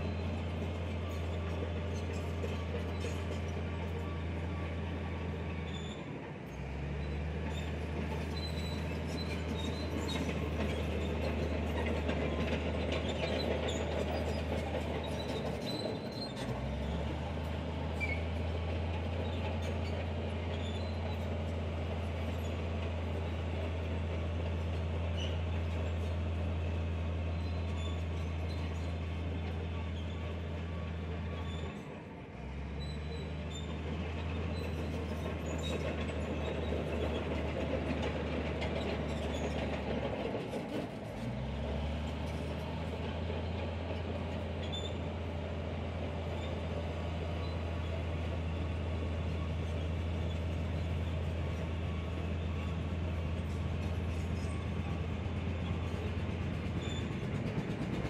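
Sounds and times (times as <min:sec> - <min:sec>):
bulldozer diesel engine: 0:00.0 - 0:58.0
steel tracks clattering: 0:08.8 - 0:17.3, 0:33.7 - 0:45.5, 0:46.4 - 0:58.0.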